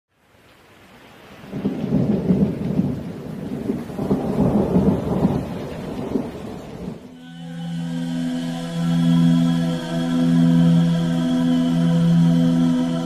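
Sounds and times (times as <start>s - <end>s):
rain: 0.1s - 13.0s
thunder rolling: 1.5s - 7.2s.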